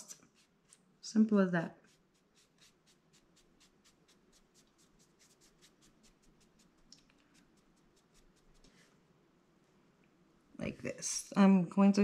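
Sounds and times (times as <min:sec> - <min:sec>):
stiff brush sweeping paper: 0:00.0 - 0:00.8, 0:01.7 - 0:08.9.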